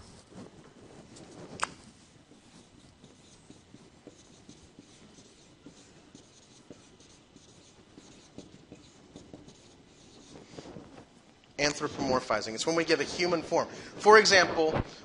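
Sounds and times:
writing scratching on a board: 0:00.3 - 0:11.2.

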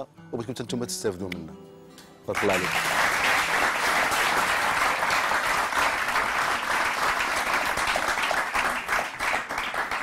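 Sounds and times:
studio audience applauding: 0:02.3 - 0:10.0.

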